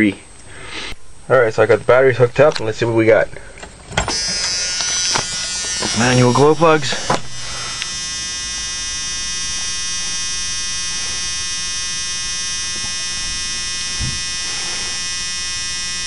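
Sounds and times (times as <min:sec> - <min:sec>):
steady electric buzz: 0:00.0 - 0:16.0.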